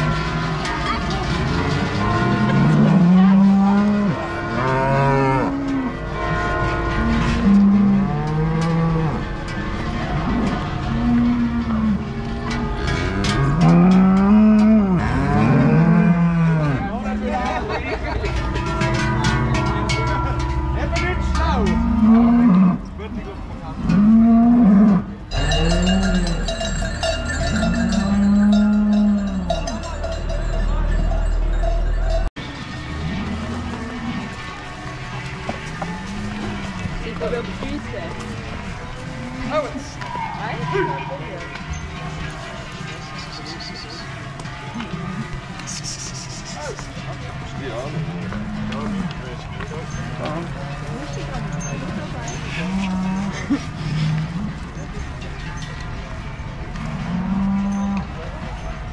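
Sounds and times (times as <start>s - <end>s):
cows mooing: 0.0s - 17.4s, 18.6s - 22.9s, 23.8s - 30.7s, 47.9s - 54.7s, 56.7s - 58.2s
cowbells ringing: 11.7s - 22.9s, 25.1s - 45.6s, 46.2s - 58.9s.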